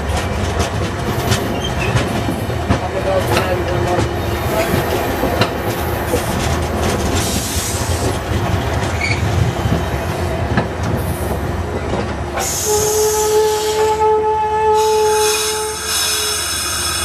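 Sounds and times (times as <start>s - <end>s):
wheels clacking over rail joints: 0.0s - 12.5s
steel wheels rumbling on rail: 0.0s - 17.0s.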